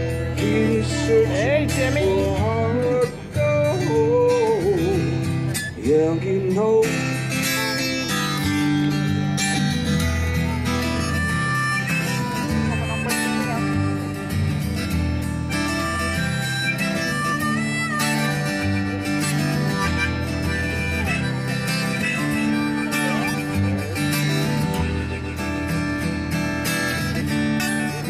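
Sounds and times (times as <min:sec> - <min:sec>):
solo acoustic guitar music: 0:00.0 - 0:28.0.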